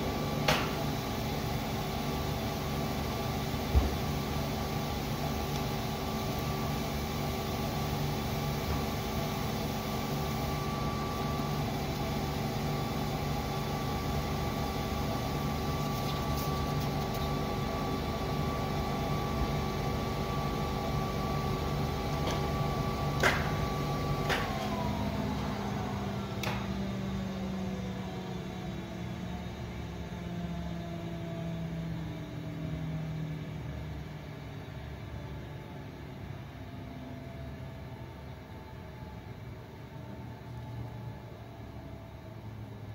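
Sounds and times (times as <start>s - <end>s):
paper cutter motor humming: 0.0s - 28.2s.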